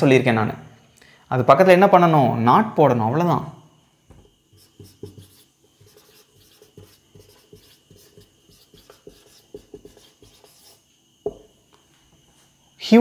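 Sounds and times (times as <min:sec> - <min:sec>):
marker writing on whiteboard: 0:04.5 - 0:11.4.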